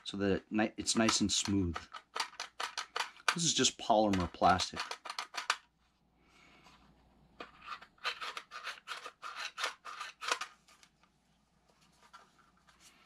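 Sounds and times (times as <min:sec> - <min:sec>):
plastic magazine rasping scrapes: 0:01.0 - 0:05.6, 0:07.4 - 0:10.6.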